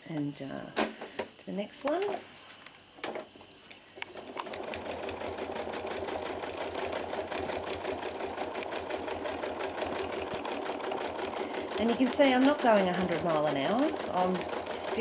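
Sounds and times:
sewing machine stitching: 0:04.2 - 0:15.0.

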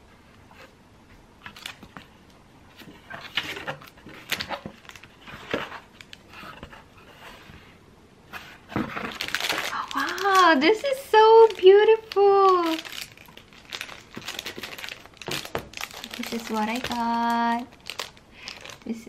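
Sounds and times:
paper and packaging rustling: 0:01.4 - 0:07.5, 0:08.3 - 0:19.0.

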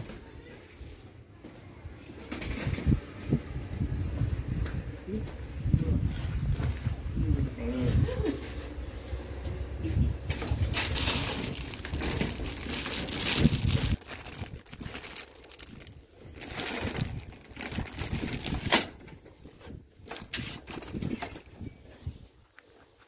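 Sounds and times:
plastic bag crinkling: 0:10.3 - 0:22.0.

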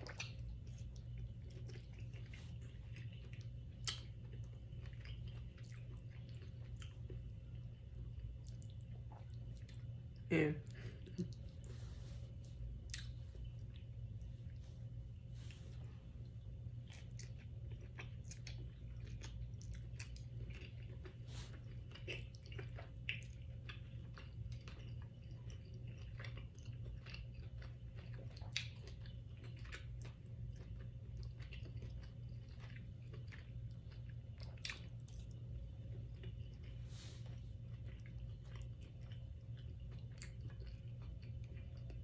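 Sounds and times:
chewing soft food: 0:00.0 - 0:42.0
steady low hum: 0:00.0 - 0:42.0.

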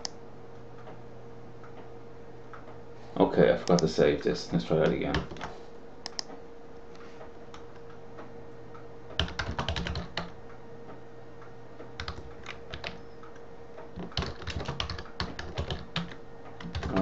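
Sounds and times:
faint steady hum: 0:00.0 - 0:17.0
computer keyboard typing: 0:04.8 - 0:05.5, 0:09.1 - 0:10.4, 0:12.0 - 0:17.0.

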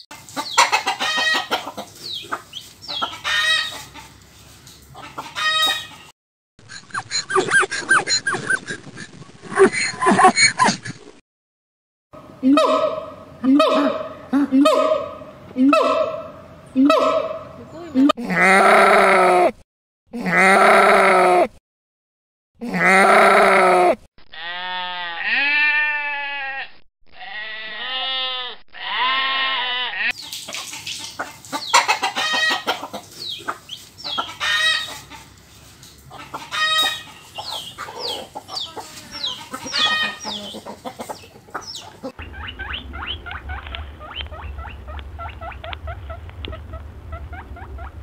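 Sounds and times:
guineafowl harsh calls: 0:00.5 - 0:02.3, 0:02.9 - 0:03.9, 0:05.0 - 0:06.1, 0:12.4 - 0:17.6, 0:31.6 - 0:35.2, 0:36.1 - 0:48.0
long rising and falling animal calls: 0:41.9 - 0:48.0
low steady hum: 0:42.1 - 0:48.0.

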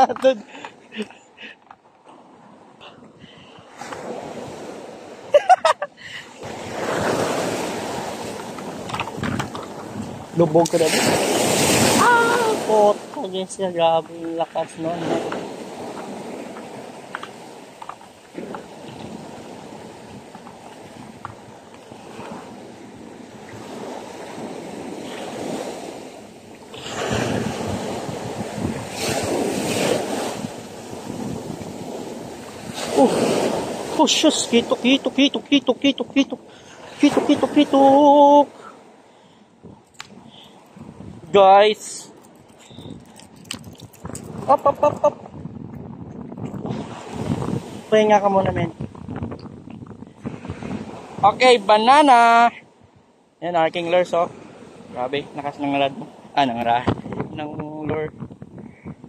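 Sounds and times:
surf waves breaking: 0:00.0 - 0:59.0
wind buffeting microphone: 0:06.4 - 0:34.8, 0:39.6 - 0:51.8, 0:54.0 - 0:59.0.

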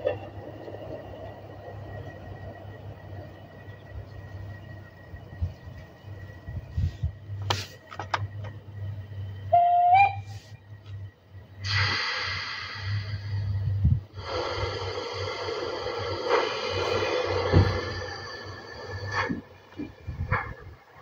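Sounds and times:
low hum: 0:00.2 - 0:11.6
model train whistle: 0:09.4 - 0:10.3
steam hissing: 0:11.6 - 0:20.3.

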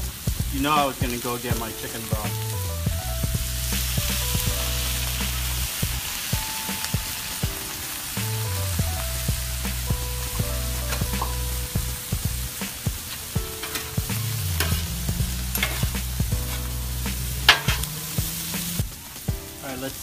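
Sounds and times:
background music with bass line: 0:00.0 - 0:19.7
food sizzling on griddle: 0:00.0 - 0:20.0
metal spatulas clicking and scraping: 0:13.1 - 0:14.9, 0:15.6 - 0:16.7, 0:17.4 - 0:18.0.

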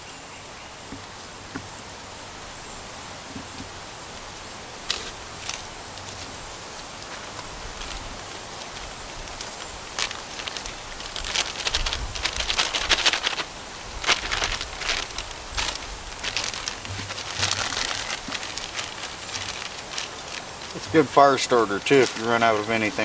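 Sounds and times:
plastic bag crinkling: 0:04.8 - 0:23.0.

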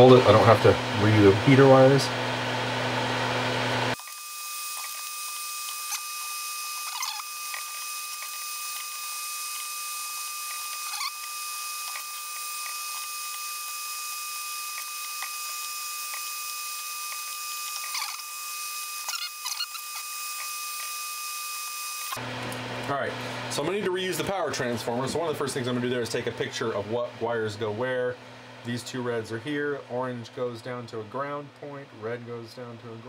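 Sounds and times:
hand tool clicks and squeaks: 0:04.8 - 0:09.0, 0:10.4 - 0:13.4, 0:17.1 - 0:18.3, 0:19.0 - 0:21.0.

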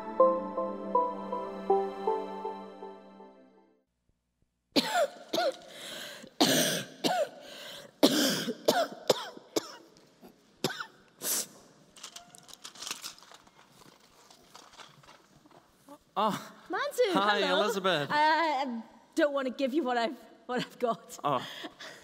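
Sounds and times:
person coughing: 0:04.8 - 0:05.7, 0:06.4 - 0:07.4, 0:08.0 - 0:09.9, 0:10.6 - 0:11.0.

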